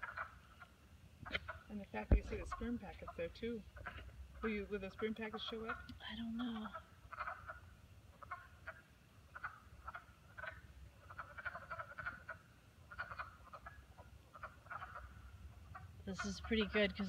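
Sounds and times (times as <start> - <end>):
low background rumble: 0.0 - 8.7
frogs croaking: 0.0 - 17.0.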